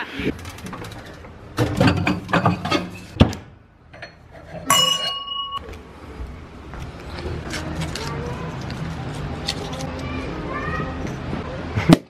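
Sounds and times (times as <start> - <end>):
glass bottles rattling: 1.6 - 3.2
wine glass clinking: 4.0 - 5.6.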